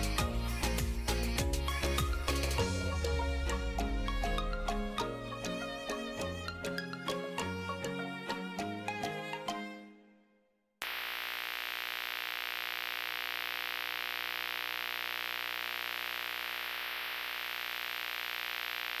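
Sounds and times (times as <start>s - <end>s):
low buzzing hum: 10.8s - 19.0s
tape static hiss: 10.8s - 19.0s.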